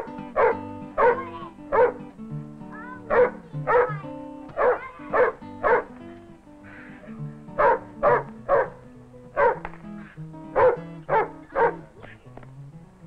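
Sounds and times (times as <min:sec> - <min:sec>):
dog barking: 0:00.0 - 0:02.1, 0:03.0 - 0:06.0, 0:06.7 - 0:09.7, 0:10.5 - 0:11.9
background music: 0:00.0 - 0:13.0.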